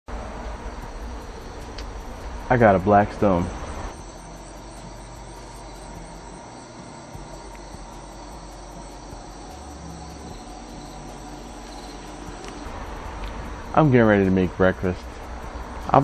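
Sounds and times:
insects trilling: 0.5s - 16.0s.

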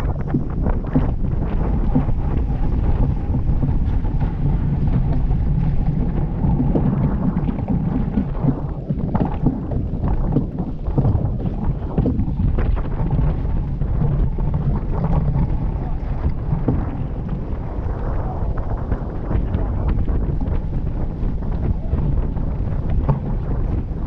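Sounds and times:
water rushing along hull: 0.0s - 24.0s
wind buffeting microphone: 0.0s - 24.0s.

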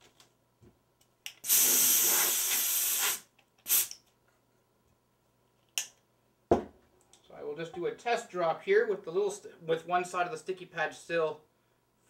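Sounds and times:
compressed air duster hissing: 1.4s - 4.0s.

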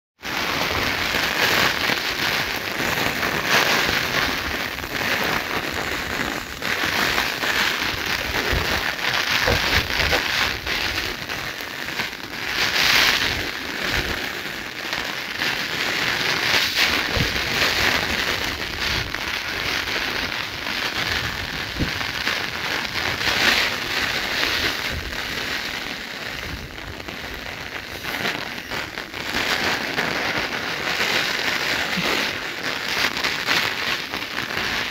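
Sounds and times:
rain pattering: 0.3s - 29.4s, 30.7s - 34.9s.

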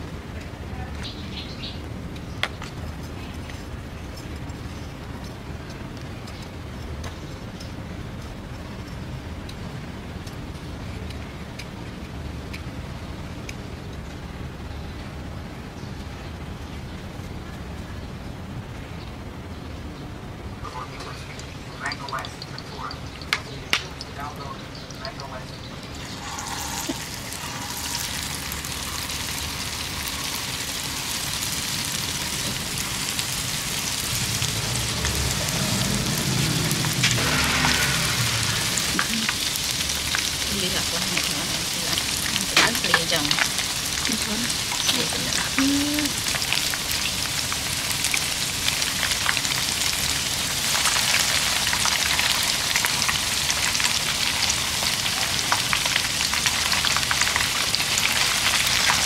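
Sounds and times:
deep-frying sizzle in oil: 20.5s - 59.0s.

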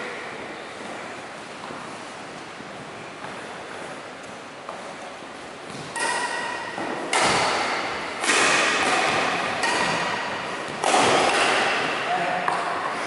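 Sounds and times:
racket hitting shuttlecock: 5.7s - 12.9s.

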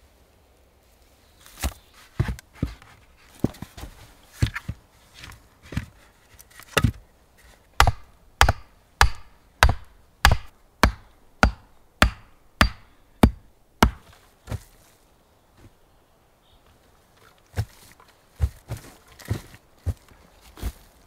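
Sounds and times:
hatchet striking wood: 7.8s - 14.1s.

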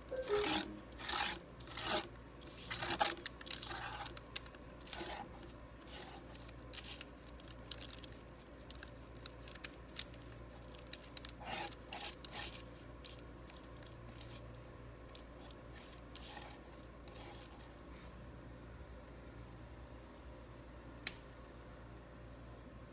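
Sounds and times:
palette knife scraping paint: 0.2s - 4.2s, 4.8s - 7.0s, 11.4s - 14.4s, 15.4s - 18.0s.

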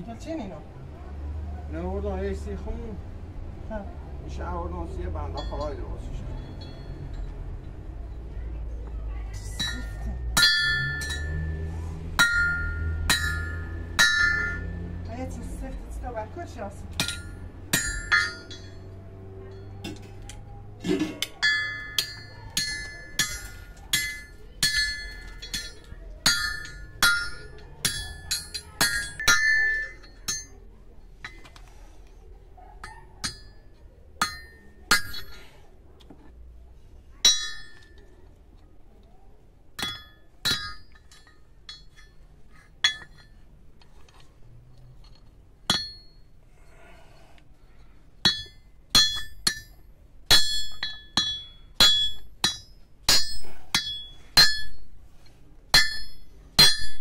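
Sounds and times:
hammer striking steel: 9.5s - 11.6s, 12.2s - 14.9s, 16.9s - 19.0s, 20.9s - 30.6s, 33.2s - 33.6s, 34.2s - 35.5s, 37.3s - 38.0s, 39.8s - 42.2s, 42.8s - 43.3s, 45.7s - 46.2s, 48.2s - 54.9s, 55.7s - 57.0s.

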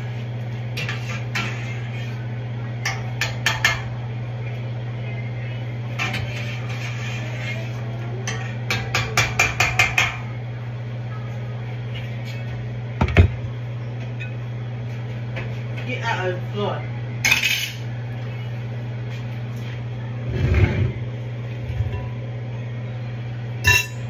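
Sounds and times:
steady low hum: 0.0s - 24.0s
metal spoon clanking on pot: 2.8s - 3.9s, 23.6s - 24.0s.

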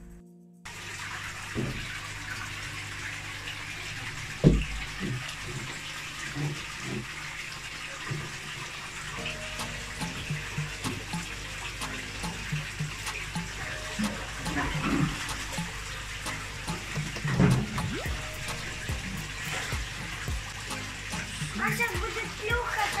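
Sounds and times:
flowing water: 0.7s - 23.0s
low gurgling bubbles: 10.2s - 22.7s.

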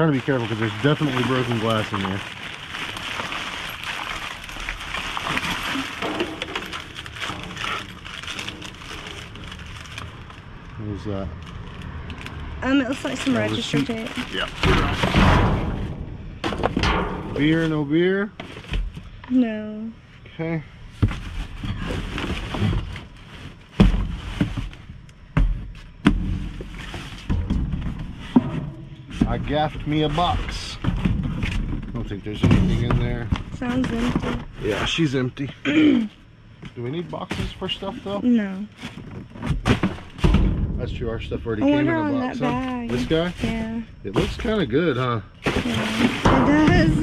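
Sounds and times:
trash and boxes rustling: 0.0s - 10.5s, 13.0s - 17.8s, 21.0s - 35.1s, 36.9s - 40.6s, 45.4s - 47.0s
rustling of trash bags and paper: 0.0s - 15.2s
sharp knocks and thuds: 14.5s - 17.7s, 20.9s - 34.8s, 38.8s - 41.1s.

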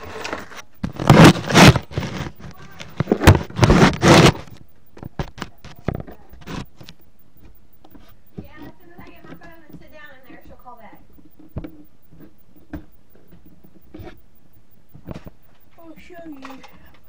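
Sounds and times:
camera handling scraping: 0.0s - 9.5s, 11.2s - 14.2s
sharp clicks and knocks: 0.2s - 14.3s.

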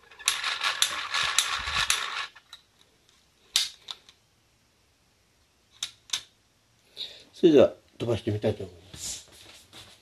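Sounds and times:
plastic parts clicking and clattering: 0.0s - 4.2s.

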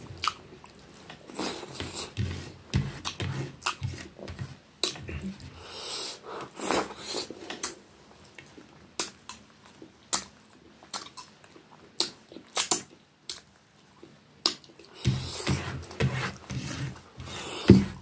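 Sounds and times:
mouth smacking and chewing: 0.2s - 2.0s, 7.0s - 15.0s.

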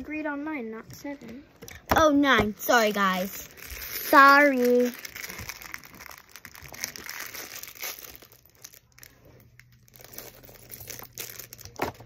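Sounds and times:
plastic packet crinkling: 2.6s - 12.0s.

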